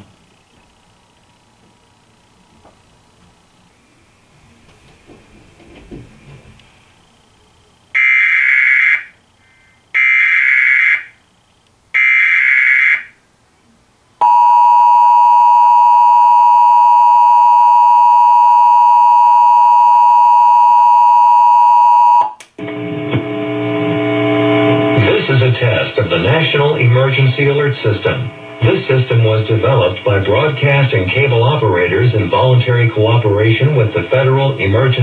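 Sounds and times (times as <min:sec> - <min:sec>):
person speaking: 0:24.9 - 0:35.0.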